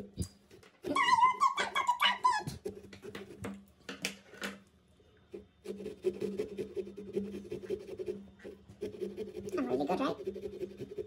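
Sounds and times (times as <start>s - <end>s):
saw cutting pumpkin rind: 5.6s - 11.0s.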